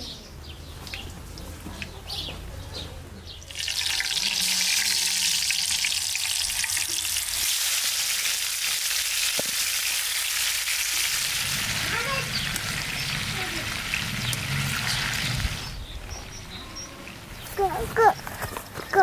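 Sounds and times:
birds chirping: 0:00.0 - 0:07.4, 0:11.4 - 0:19.0
potatoes sizzling in hot oil: 0:03.5 - 0:15.7.

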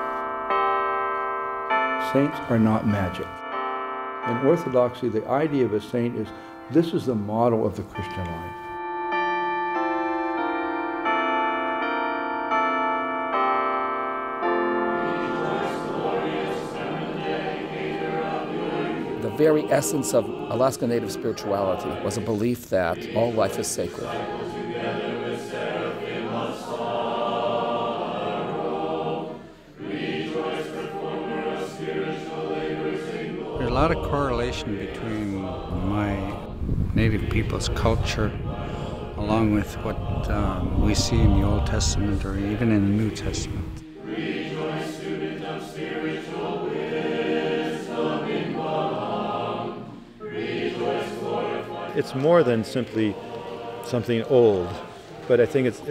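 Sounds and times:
choir singing a chant: 0:14.4 - 0:55.9.

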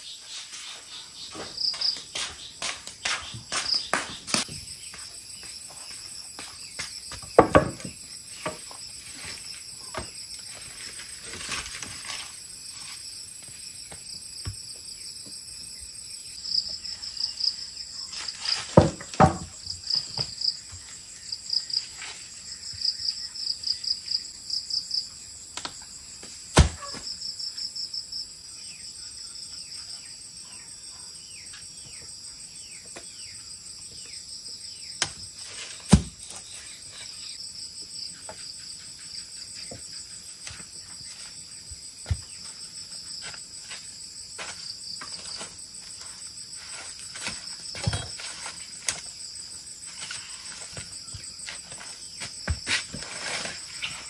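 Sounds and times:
insects chirping: 0:00.0 - 0:54.0
sharp knocks and thumps: 0:06.4 - 0:08.8, 0:18.5 - 0:20.8, 0:35.8 - 0:36.4, 0:47.1 - 0:49.0.

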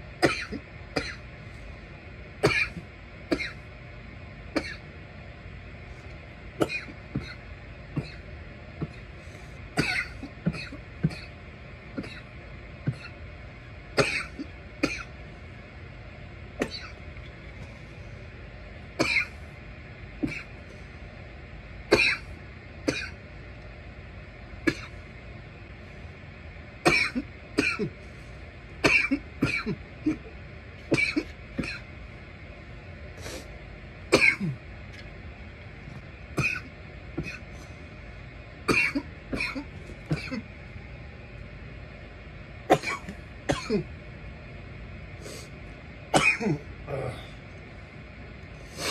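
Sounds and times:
person coughing: 0:00.2 - 0:01.2, 0:02.4 - 0:03.6, 0:04.6 - 0:04.8, 0:06.6 - 0:07.4, 0:08.0 - 0:08.2, 0:09.8 - 0:11.3, 0:12.0 - 0:12.3, 0:14.0 - 0:15.1, 0:16.6 - 0:17.0, 0:19.0 - 0:19.4, 0:20.2 - 0:20.5, 0:21.9 - 0:22.3, 0:22.9 - 0:23.2, 0:24.7 - 0:24.9, 0:26.9 - 0:28.0, 0:28.8 - 0:30.3, 0:30.9 - 0:31.8, 0:34.1 - 0:34.6, 0:36.4 - 0:37.5, 0:38.7 - 0:40.5, 0:42.7 - 0:43.9, 0:46.1 - 0:47.4
throat clearing: 0:20.2 - 0:20.5, 0:36.4 - 0:37.5, 0:46.2 - 0:47.4.

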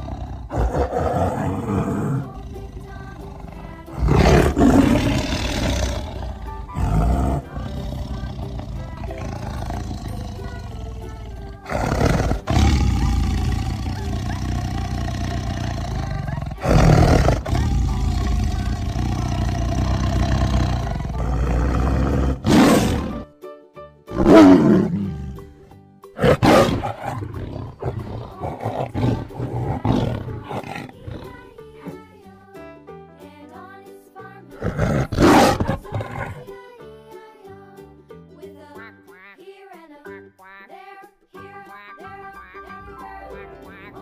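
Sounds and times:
tiger roaring and growling: 0:00.0 - 0:23.3, 0:24.1 - 0:25.5, 0:26.2 - 0:31.6, 0:34.6 - 0:36.5
background music: 0:00.0 - 0:44.0.

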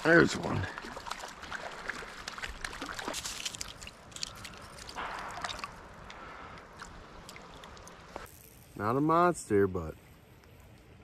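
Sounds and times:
water trickling: 0:00.0 - 0:08.6
fish splashing in water: 0:00.7 - 0:08.3.

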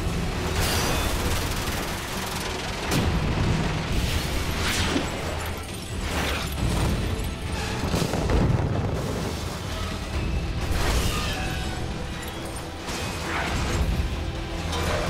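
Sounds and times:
film score music: 0:00.0 - 0:15.0
explosions: 0:07.8 - 0:09.8.

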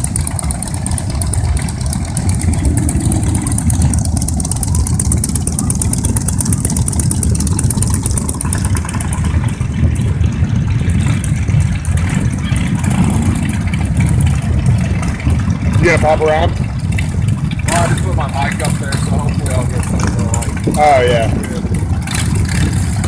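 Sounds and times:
motorcycles rumbling past: 0:00.0 - 0:23.0.

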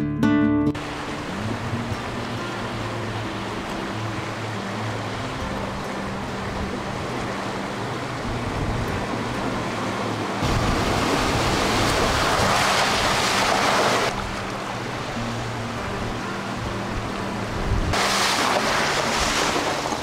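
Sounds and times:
vehicle driving hum: 0:00.8 - 0:20.0
loud rushing noise: 0:10.4 - 0:14.1, 0:17.7 - 0:20.0.

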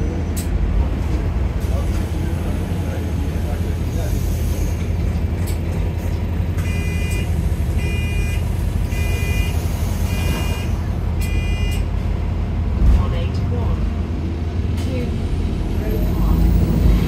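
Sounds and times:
bus engine drone: 0:00.0 - 0:17.0
electronic warning beep: 0:07.8 - 0:11.8.

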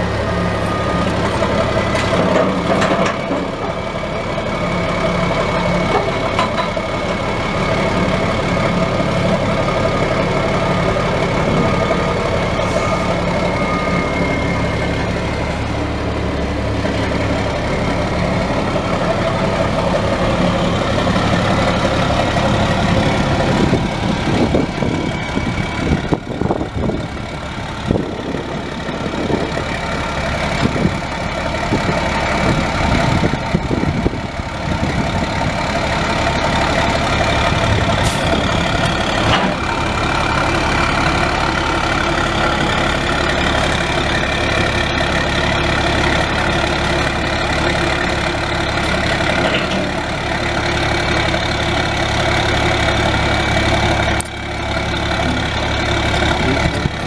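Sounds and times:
diesel truck engine idling: 0:00.0 - 0:57.0.

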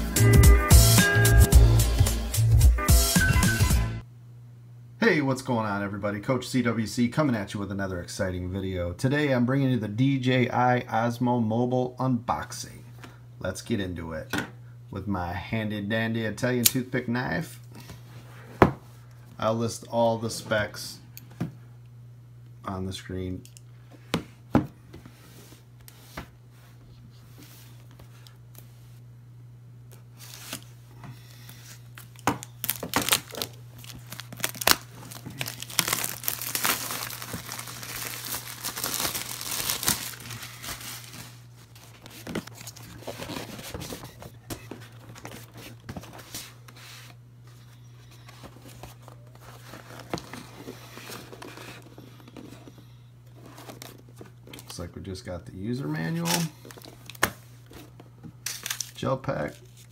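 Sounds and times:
steady low hum: 0:04.0 - 0:59.9
packaging rustling: 0:31.5 - 0:47.1, 0:48.0 - 0:54.8, 0:56.1 - 0:59.9
shrink wrap crinkling and tearing: 0:31.7 - 0:44.1, 0:58.4 - 0:59.9.

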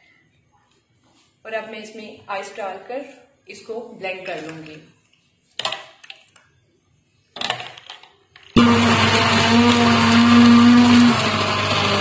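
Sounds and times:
blender blending ice: 0:08.6 - 0:12.0.

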